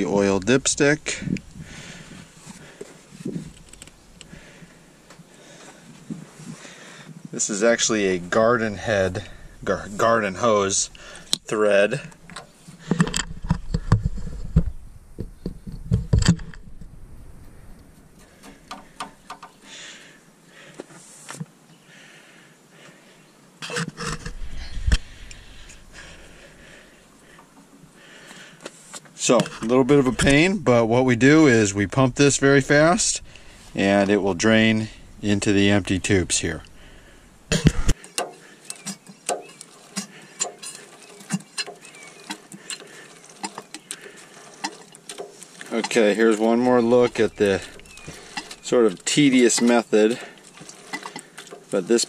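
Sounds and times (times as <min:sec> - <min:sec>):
knocks and rubbing: 0:18.2 - 0:19.6
hand pump clicking and knocking: 0:18.4 - 0:19.6, 0:37.5 - 0:46.2, 0:46.9 - 0:48.6, 0:50.6 - 0:51.7.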